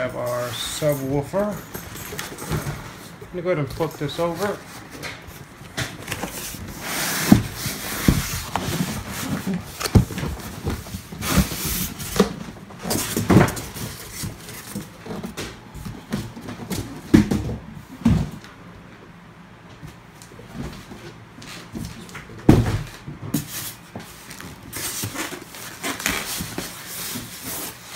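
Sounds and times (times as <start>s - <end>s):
cardboard scraping and rustling: 4.2s - 15.4s, 23.4s - 27.9s
cardboard box knocks and thumps: 7.2s - 13.8s.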